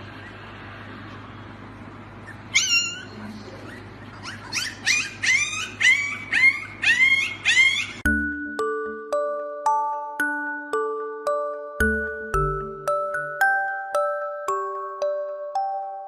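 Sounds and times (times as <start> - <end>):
puppy yipping: 2.2 - 8.1.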